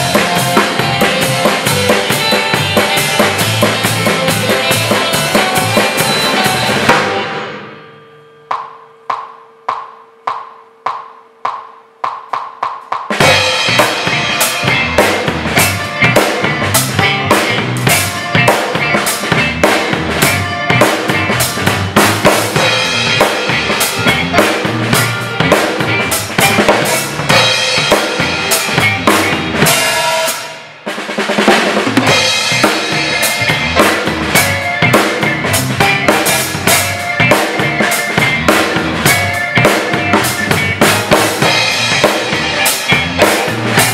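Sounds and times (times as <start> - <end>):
drum kit playing: 0.0 - 7.9, 8.5 - 43.9
backing track music: 0.0 - 43.9
count-in clicks: 8.4 - 12.8.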